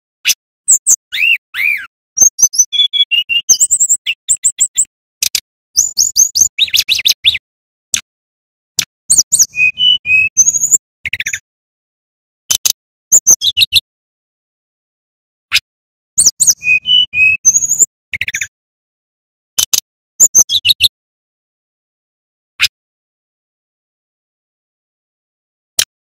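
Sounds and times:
bird singing high chirps and trills: 0.3 - 7.4, 9.1 - 11.4, 12.5 - 13.8, 15.5 - 18.5, 19.6 - 20.9.

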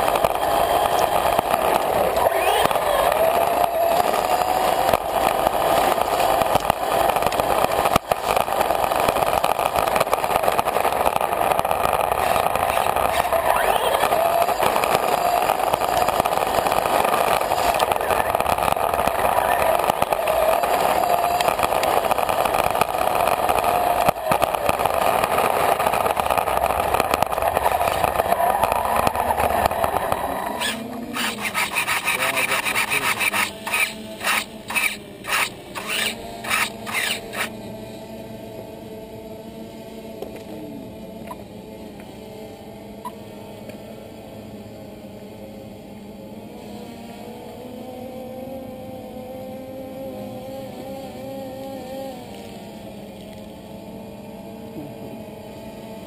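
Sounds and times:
toy car motor whining: 0.0 - 39.2, 39.8 - 56.0
tyres grinding over gritty pavement: 12.0 - 37.5.

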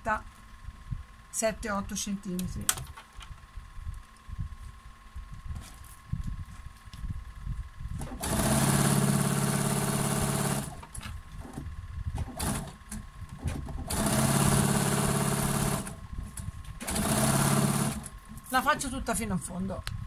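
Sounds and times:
sewing machine stitching fabric: 8.0 - 10.8, 13.8 - 16.0, 16.8 - 18.1.

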